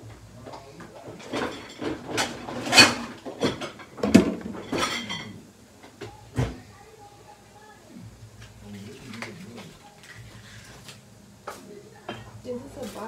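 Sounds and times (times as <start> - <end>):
pots and pans clattering: 0.0 - 6.6, 11.5 - 13.0.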